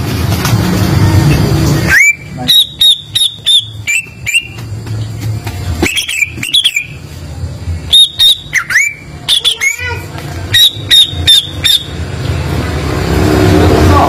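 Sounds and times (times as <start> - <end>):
bird singing whistled notes: 1.9 - 4.6, 5.8 - 7.0, 7.9 - 9.8.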